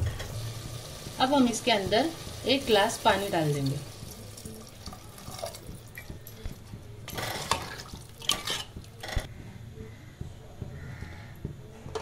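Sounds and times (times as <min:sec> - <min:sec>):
water pouring into pot: 0:00.2 - 0:09.0
spoon stirring and scraping pot: 0:04.8 - 0:09.0.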